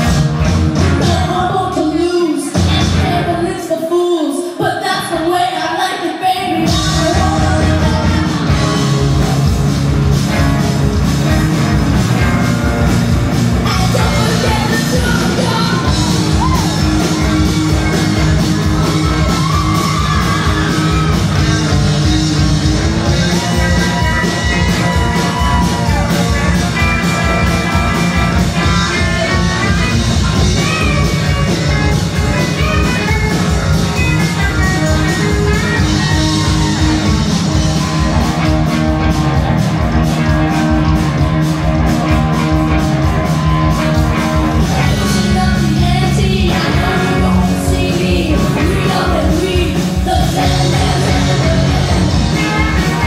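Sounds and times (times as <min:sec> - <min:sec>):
live rock band playing: 0:00.0 - 0:53.0
person singing: 0:00.8 - 0:09.2, 0:13.6 - 0:17.1, 0:44.5 - 0:53.0.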